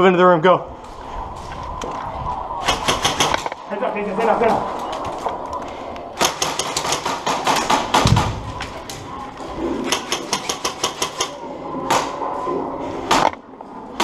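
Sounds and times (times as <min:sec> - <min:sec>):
airsoft guns firing: 0:02.6 - 0:03.5, 0:06.2 - 0:08.6.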